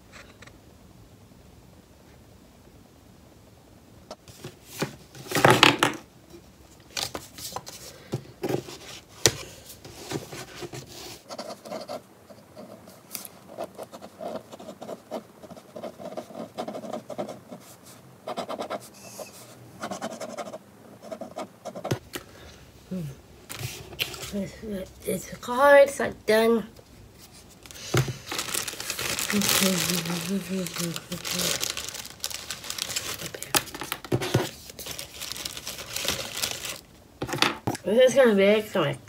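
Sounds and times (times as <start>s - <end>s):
paper rustling and rubbing: 6.9s - 12.0s, 27.1s - 36.8s.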